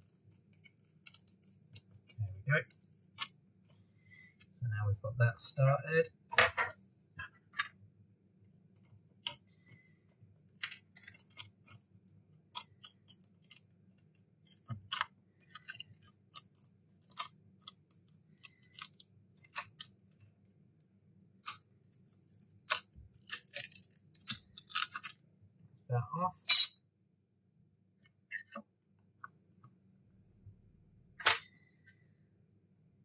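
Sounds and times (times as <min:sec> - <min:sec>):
glass clicking and crackling: 0:00.0 - 0:03.3, 0:10.4 - 0:11.8, 0:12.4 - 0:20.2, 0:21.4 - 0:25.2
low steady hum: 0:00.0 - 0:33.0.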